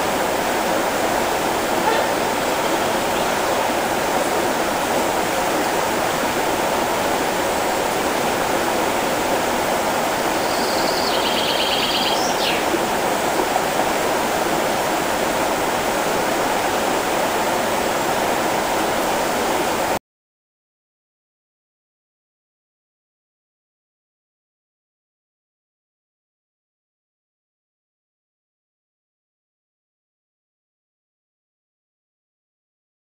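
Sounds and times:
river rushing over riffles: 0.0s - 20.0s.

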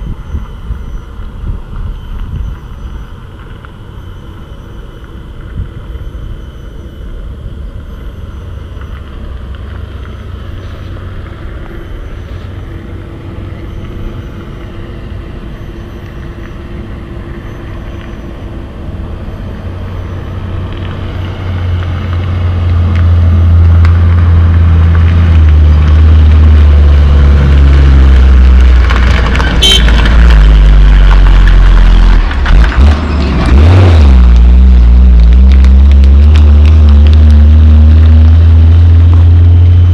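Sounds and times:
dump truck diesel engine: 0.0s - 39.9s.

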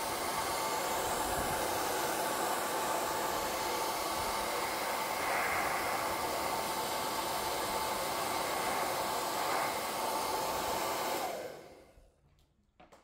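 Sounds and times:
hair dryer blowing: 0.0s - 12.0s.

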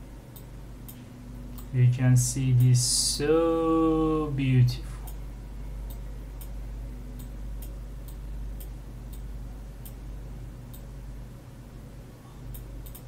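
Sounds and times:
steady low hum: 0.0s - 13.0s
computer mouse clicking: 12.5s - 13.0s.

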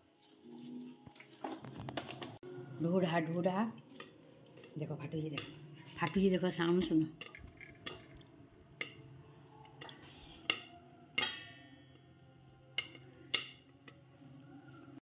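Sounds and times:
popcorn kernels popping: 10.5s - 11.6s, 12.7s - 13.8s
pop ringing off a steel lid: 11.2s - 11.6s.

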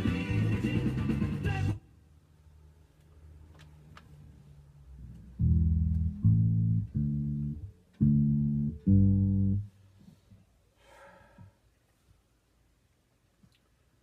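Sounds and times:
electric bass plucked notes: 5.1s - 9.8s.

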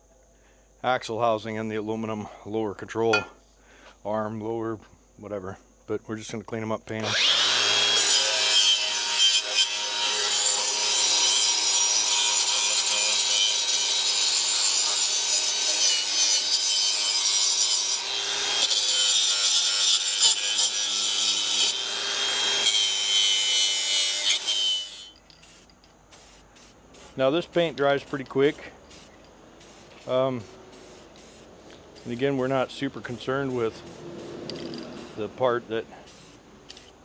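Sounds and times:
power tool scrubbing metal: 26.2s - 35.4s, 36.0s - 37.0s.

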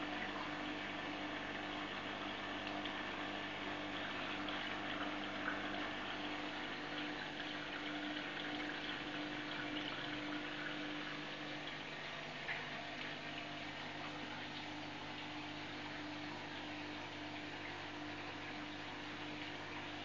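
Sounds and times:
aquarium pump hum: 0.0s - 20.0s.

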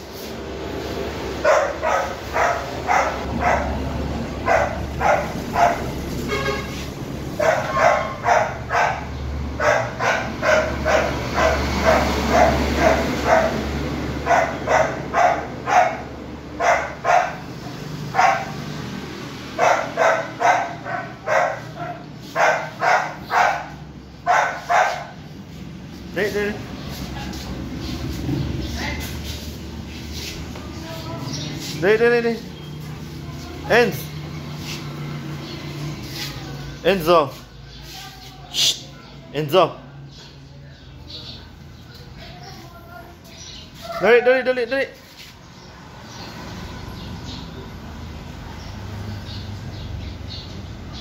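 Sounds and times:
puppy barking: 1.4s - 6.6s, 7.3s - 18.7s, 19.6s - 25.3s, 27.0s - 27.6s.

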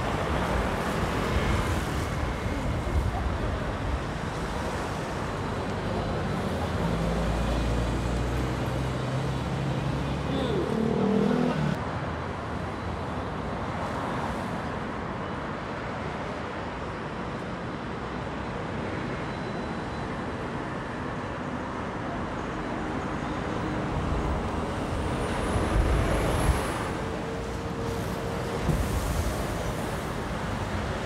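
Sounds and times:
city street traffic: 0.0s - 31.0s.

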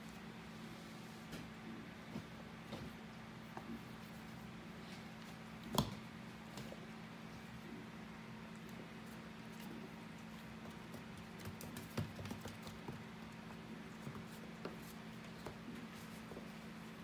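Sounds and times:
steady low hum: 0.0s - 17.0s
puppies clicking and tapping: 9.4s - 15.9s.

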